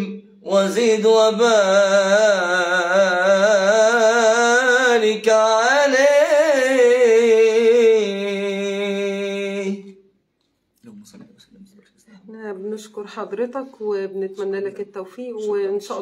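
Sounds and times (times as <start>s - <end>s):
man singing long melismas: 0.0s - 10.0s.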